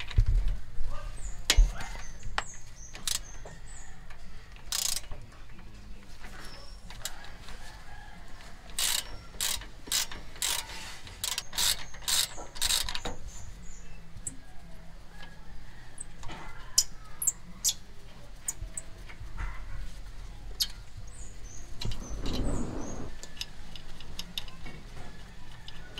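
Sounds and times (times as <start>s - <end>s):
hand ratchet clicking: 2.9s - 3.3s, 4.7s - 5.1s, 8.8s - 13.1s.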